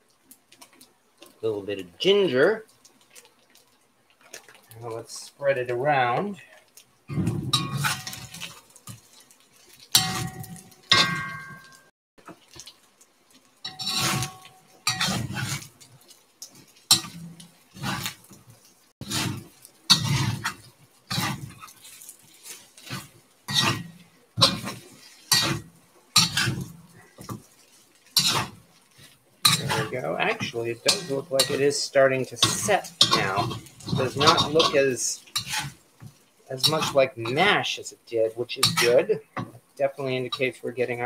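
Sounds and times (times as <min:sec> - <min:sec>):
utensil scraping cast iron pan: 0:07.2 - 0:11.8, 0:13.6 - 0:15.8, 0:16.5 - 0:18.4, 0:19.0 - 0:39.2.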